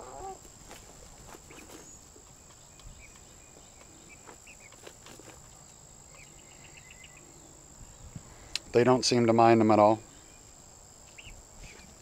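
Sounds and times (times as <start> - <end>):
insects droning: 0.0 - 12.0
faint chirps: 1.4 - 12.0.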